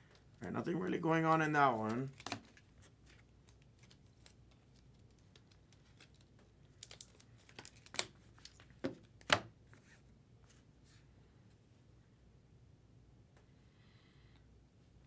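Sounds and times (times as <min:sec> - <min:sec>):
cards being handled: 0:01.7 - 0:10.6
foil wrapper crinkling and tearing: 0:02.1 - 0:08.7.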